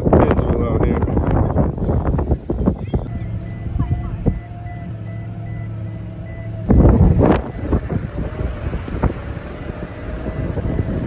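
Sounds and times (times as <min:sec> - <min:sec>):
motor vehicle hum: 0:00.0 - 0:11.0
rapid high beeping: 0:03.0 - 0:11.0.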